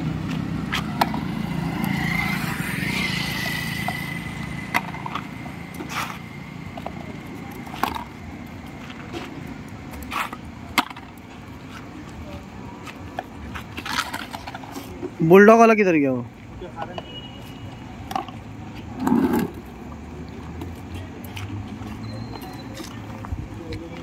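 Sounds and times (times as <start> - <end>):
motorcycle passing: 0.0 - 9.5, 18.5 - 20.0.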